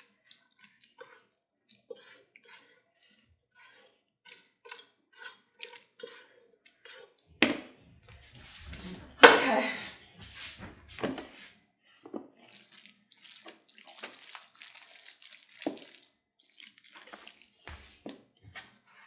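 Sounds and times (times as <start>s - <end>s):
spatula scraping macaroni from pan: 1.9s - 7.2s.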